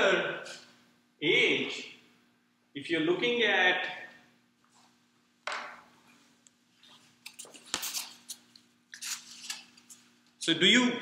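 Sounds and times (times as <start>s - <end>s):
faint room hum: 0.0s - 11.0s
paper rustling: 6.9s - 10.0s.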